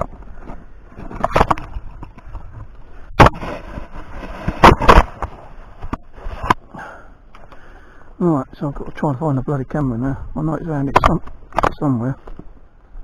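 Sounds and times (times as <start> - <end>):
camera handling rustling: 0.0 - 6.6.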